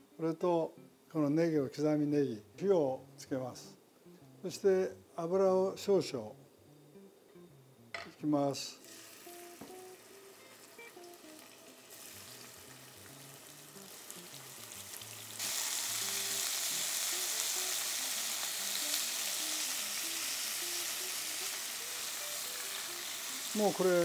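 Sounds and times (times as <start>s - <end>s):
meat sizzling in a frying pan: 8.8s - 24.0s.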